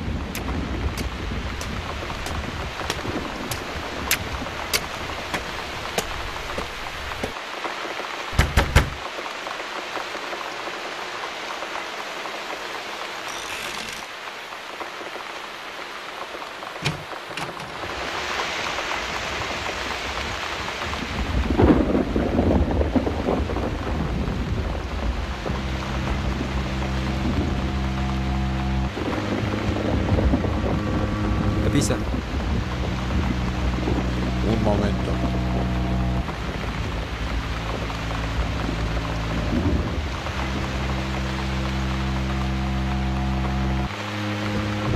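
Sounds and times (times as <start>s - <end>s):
thunder rumble: 0.0s - 7.4s, 16.7s - 43.9s
rain falling: 0.0s - 44.9s.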